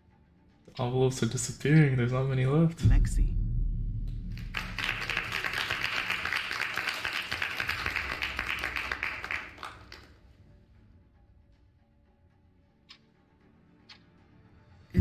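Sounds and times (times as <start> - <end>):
people applauding: 4.3 - 10.2.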